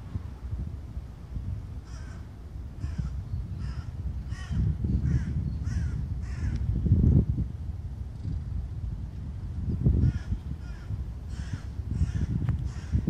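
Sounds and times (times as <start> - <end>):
crow cawing: 1.8 - 2.2, 2.8 - 6.6, 10.0 - 13.0.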